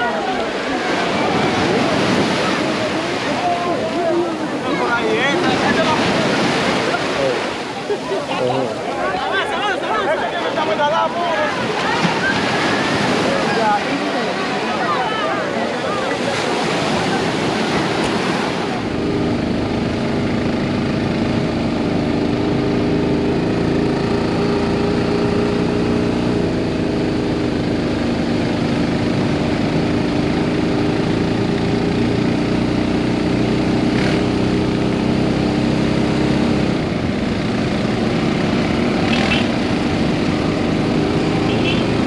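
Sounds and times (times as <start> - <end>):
atv engine running: 16.2 - 42.0.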